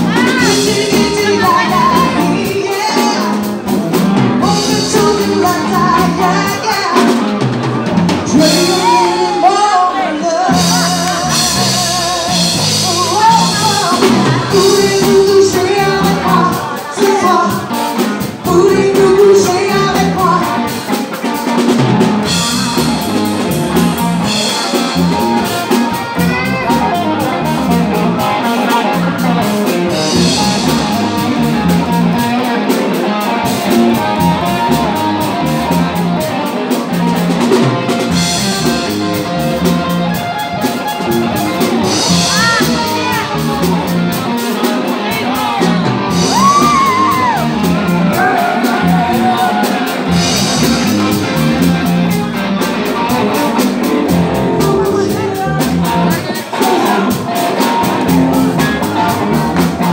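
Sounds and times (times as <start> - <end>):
woman singing: 0.0 - 3.4, 4.4 - 7.2, 8.3 - 17.7, 18.4 - 20.6
bass guitar: 0.0 - 59.9
drum kit: 0.0 - 59.9
electric guitar: 0.0 - 59.9.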